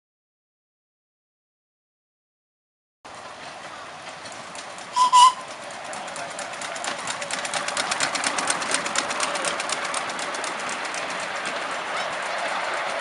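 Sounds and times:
train wheels clicking: 3.1 - 13.0
steam locomotive whistle toots: 4.9 - 5.5.

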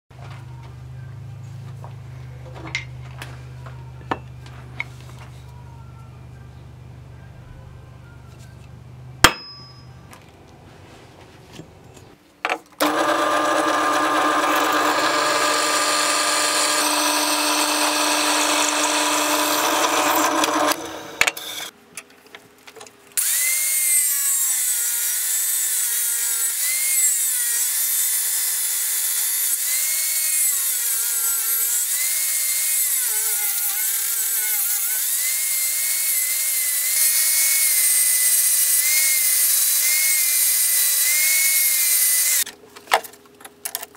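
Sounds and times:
angle grinder cutting steel: 12.8 - 21.7, 23.2 - 42.5
drill boring through metal: 12.8 - 21.7, 23.2 - 42.4.

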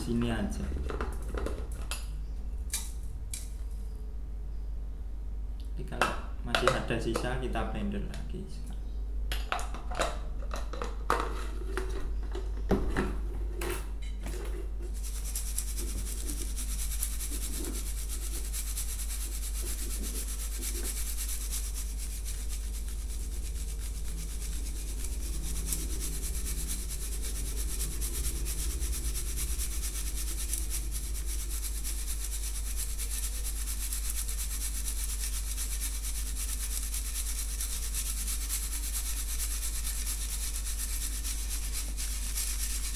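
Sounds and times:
powder rubbing through metal sieve: 14.8 - 42.9.

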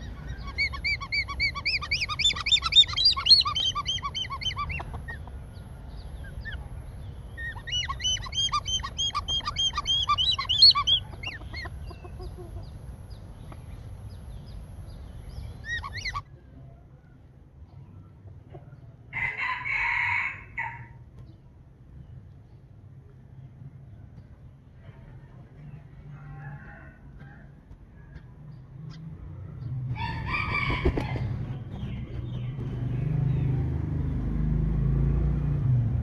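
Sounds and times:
hornbill cackling calls: 0.0 - 5.3, 7.3 - 12.8, 15.6 - 16.3.

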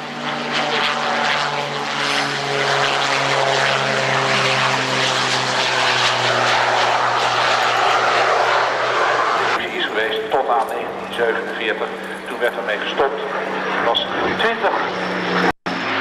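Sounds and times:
propeller aircraft engine: 0.0 - 16.0.

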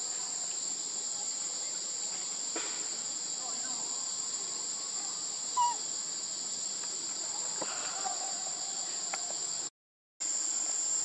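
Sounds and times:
forest insects droning: 0.0 - 11.0.

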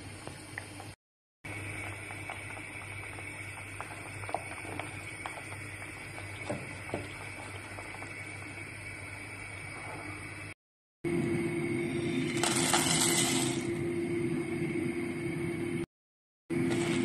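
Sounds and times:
broth bubbling in a pan: 0.0 - 10.6
steady hum: 0.0 - 15.9.

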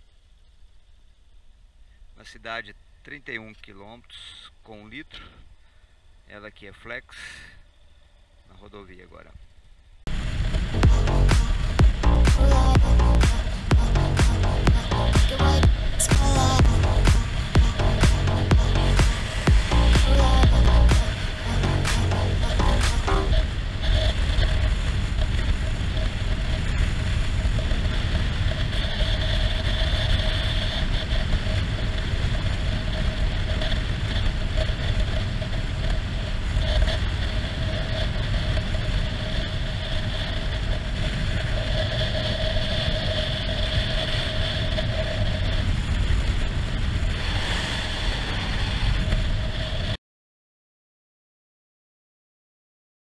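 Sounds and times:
motorcycle engine cruising: 10.1 - 41.9
wind on microphone: 10.1 - 50.0.

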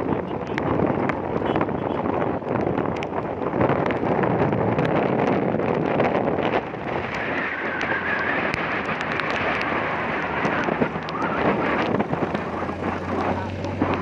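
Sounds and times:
tyre noise on wet road: 0.0 - 14.0
wind buffeting microphone: 0.0 - 14.0
motor scooter running: 8.9 - 14.0.

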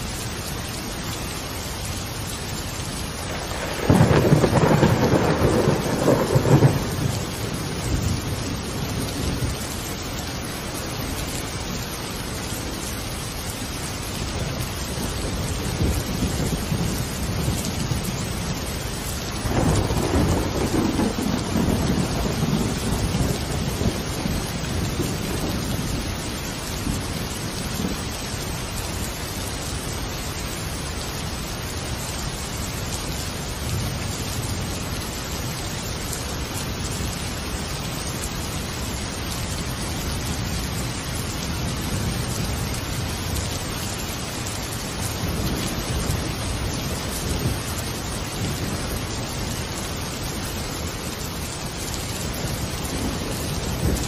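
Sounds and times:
steady rain: 0.0 - 54.0
thunder rolling: 3.2 - 9.6, 19.4 - 26.1.

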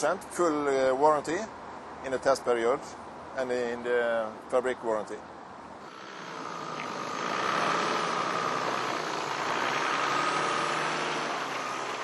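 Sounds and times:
diesel engine driving past: 5.8 - 12.0.

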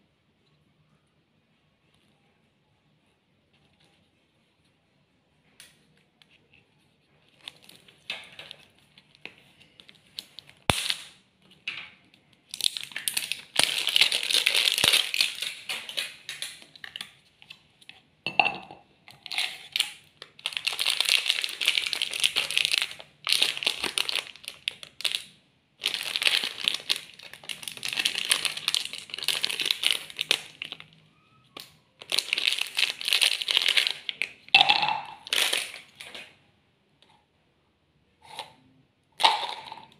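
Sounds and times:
plastic wrapper crinkling: 6.2 - 11.2, 12.3 - 17.6, 19.2 - 36.4.

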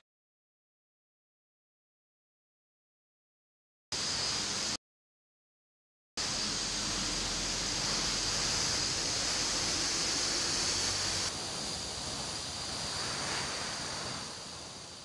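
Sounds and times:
air hiss spinning turbine: 4.0 - 4.8, 6.2 - 15.0.

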